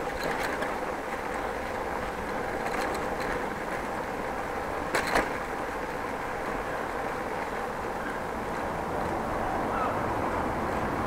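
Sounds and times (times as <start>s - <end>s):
rattling clatter: 0.0s - 4.1s, 4.8s - 5.5s
bicycle tyre and road noise: 0.0s - 11.0s.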